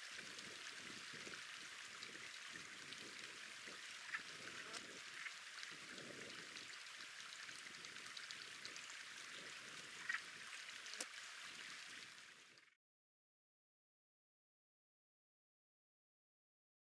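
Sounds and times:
steady outdoor hiss: 0:00.0 - 0:12.7.

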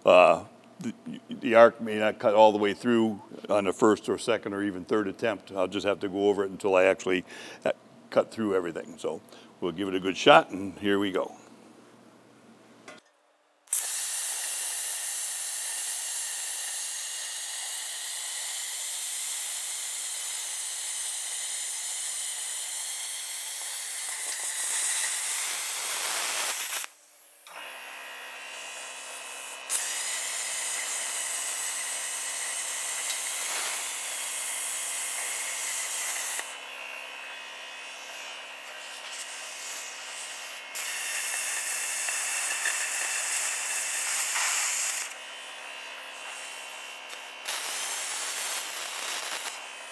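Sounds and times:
plasma cutter arc hissing: 0:13.7 - 0:49.9.

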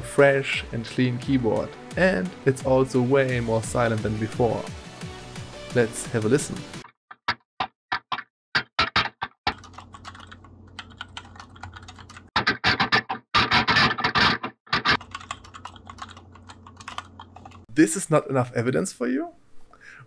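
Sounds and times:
mechanical keyboard typing: 0:09.5 - 0:12.3, 0:15.0 - 0:17.7.

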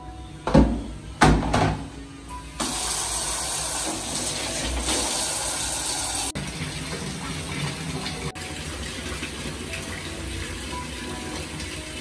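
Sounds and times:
plastic basin knocking on tiles: 0:00.5 - 0:01.9
water running into plastic basin: 0:02.6 - 0:12.0.

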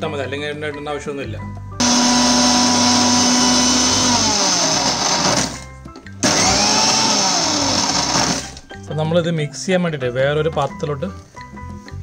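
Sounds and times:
mixer grinder motor grinding: 0:01.8 - 0:08.6.

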